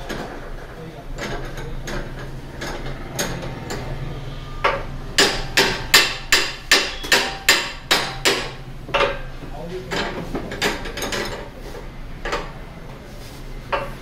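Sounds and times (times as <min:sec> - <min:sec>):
hammer striking metal: 0:04.6 - 0:09.3.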